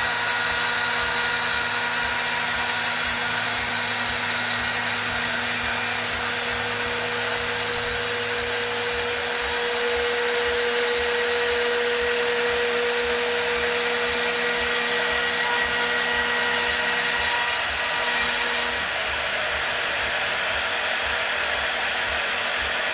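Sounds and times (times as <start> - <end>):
router spindle whirring: 0.0 - 22.9.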